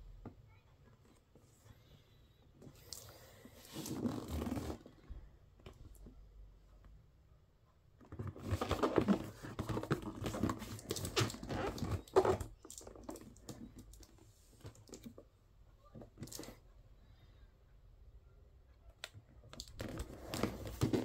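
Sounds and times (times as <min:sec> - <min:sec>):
cardboard box rustling and scraping: 0:08.3 - 0:12.5.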